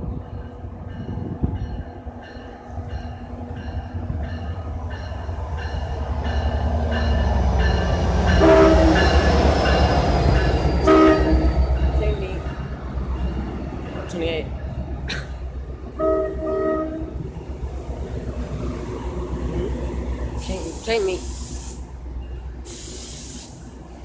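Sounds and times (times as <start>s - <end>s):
diesel train rumble: 0.0s - 24.0s
train horn blasts: 8.4s - 9.1s, 10.8s - 11.5s, 16.0s - 17.2s.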